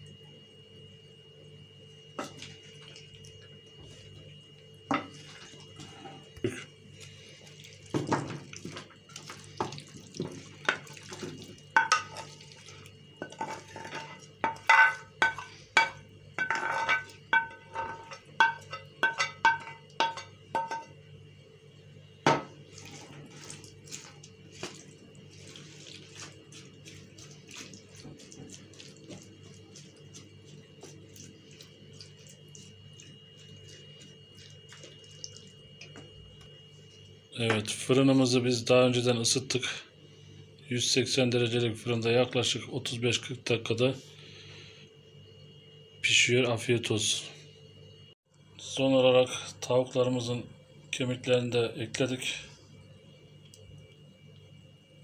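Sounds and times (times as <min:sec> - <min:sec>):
dishes and utensils clinking: 0:11.8 - 0:12.4, 0:13.2 - 0:20.9.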